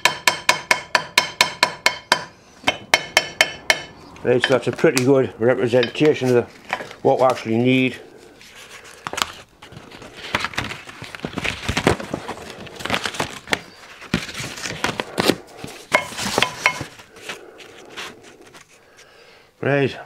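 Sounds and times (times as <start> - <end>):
rustling and tapping on workbench: 10.3 - 17.4.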